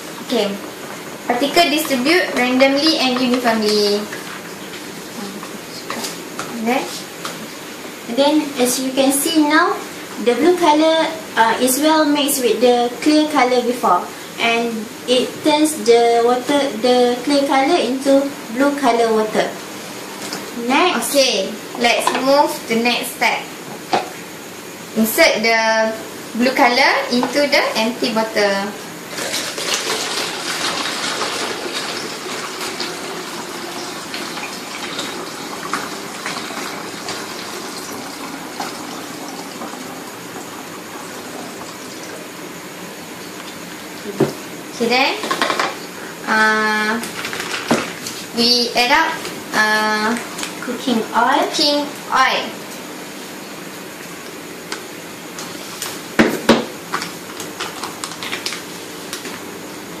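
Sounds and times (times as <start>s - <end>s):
steady background hum: 0.0s - 60.0s
water pouring through funnel: 29.1s - 42.2s
plastic pouch crinkling: 57.4s - 58.6s.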